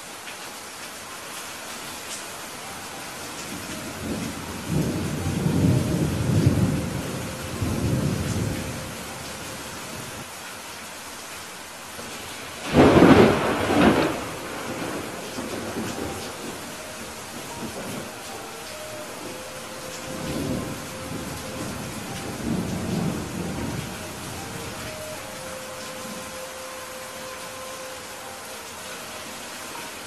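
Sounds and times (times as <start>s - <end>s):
heavy rain hiss: 0.0s - 30.0s
rolling thunder rumble: 3.8s - 9.3s, 12.6s - 25.2s.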